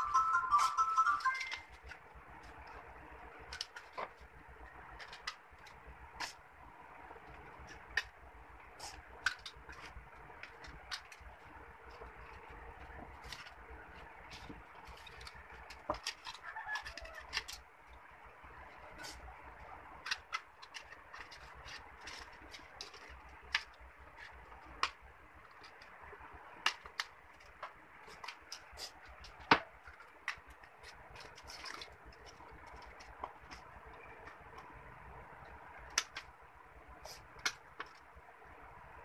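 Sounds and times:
scissors snipping paper: 13.2 - 17.6
paper rustling: 20.0 - 24.9, 26.7 - 34.6.

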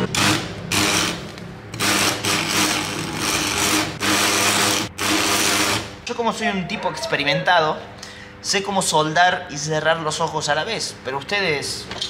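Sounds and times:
arc welding crackle: 0.0 - 5.9.

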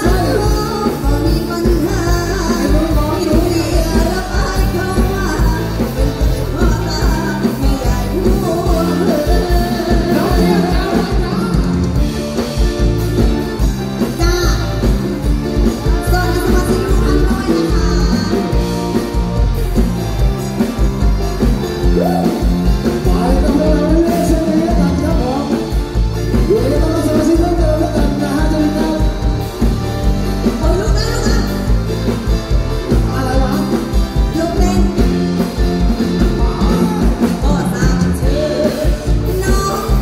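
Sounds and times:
woman singing into microphone: 0.0 - 12.0, 15.8 - 18.8, 26.4 - 29.5, 32.9 - 40.0
live band playing: 0.0 - 40.0
steady drum beat: 0.0 - 40.0.

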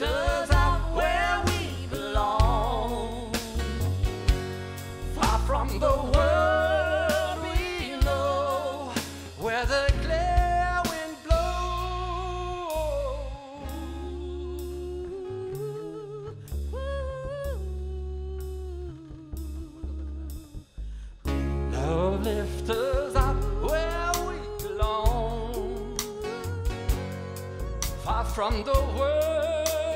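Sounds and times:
person singing with vibrato: 0.0 - 4.0, 5.1 - 20.6, 21.4 - 29.9
live band playing: 0.0 - 15.0, 21.2 - 29.9.

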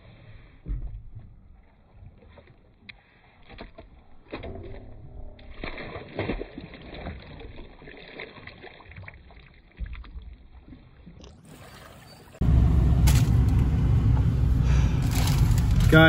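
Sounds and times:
fish splashing in water: 3.6 - 12.4
water lapping: 5.4 - 12.5
truck engine and road rumble: 12.0 - 16.0.

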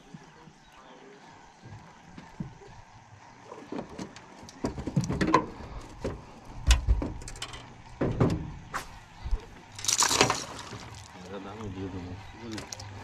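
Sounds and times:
knocks and clatter: 3.7 - 8.6.

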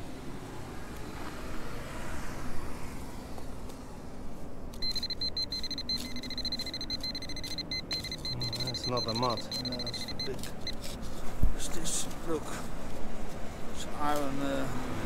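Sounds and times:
distant traffic rumble: 0.0 - 15.0
pinpointer buzzing alert tone: 4.8 - 10.8.

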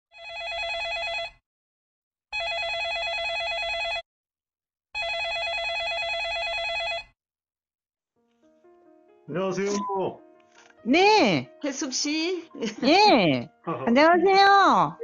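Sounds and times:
telephone ringing: 0.2 - 1.4, 2.4 - 4.0, 5.0 - 7.2.

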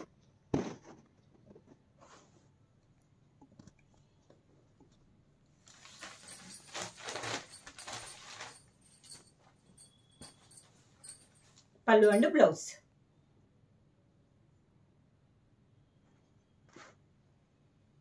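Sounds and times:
cloth rustling: 5.6 - 12.3.

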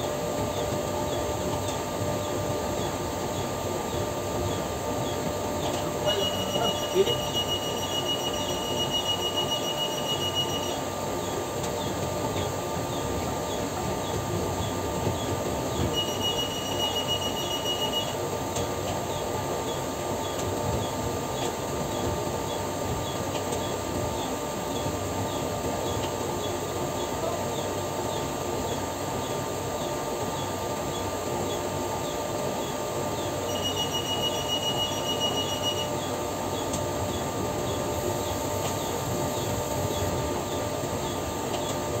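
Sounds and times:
machinery drone: 0.4 - 18.4, 32.0 - 42.0
high pulsing beep: 6.0 - 10.8, 15.9 - 18.2, 33.5 - 35.9.

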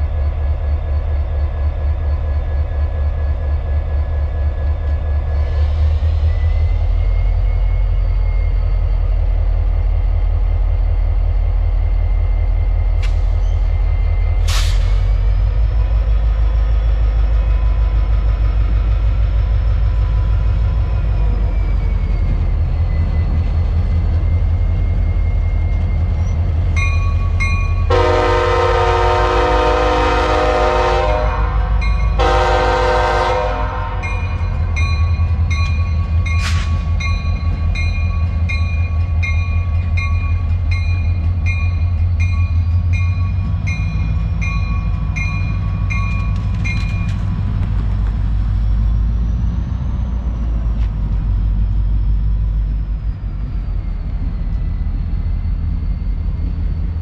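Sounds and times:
freight train rumbling past: 0.0 - 57.0
locomotive air horn blasts: 27.9 - 34.1.

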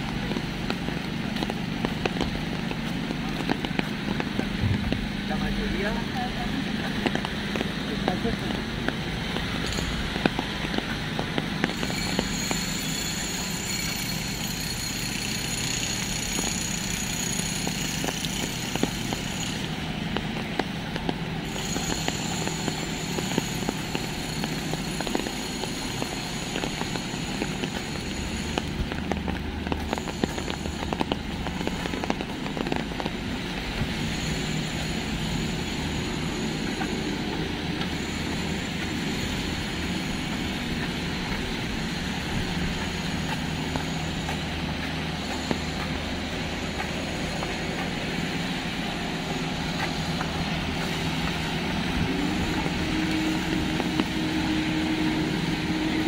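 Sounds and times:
traffic rumble: 0.0 - 56.0.

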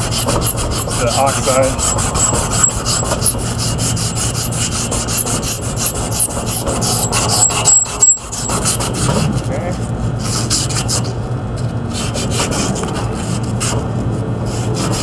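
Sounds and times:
emery cloth rasping on metal shaft: 0.0 - 9.3.

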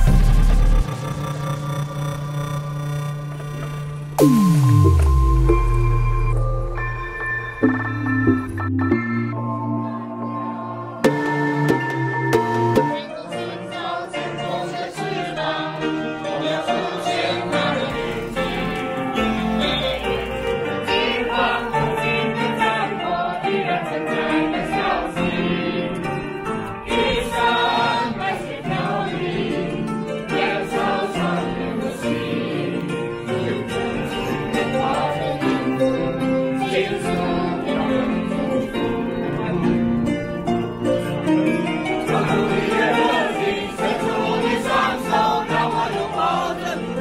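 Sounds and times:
upright piano playing: 3.1 - 47.0
people singing along: 12.4 - 40.0, 41.8 - 47.0.

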